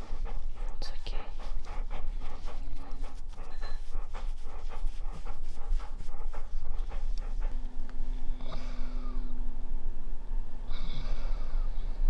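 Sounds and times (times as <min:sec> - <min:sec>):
dog panting rapidly: 0:00.0 - 0:08.4.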